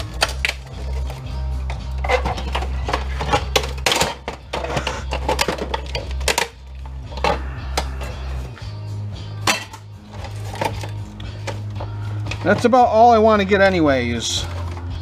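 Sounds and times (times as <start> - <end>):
plastic clicks snaps and clatter: 0.0 - 6.6.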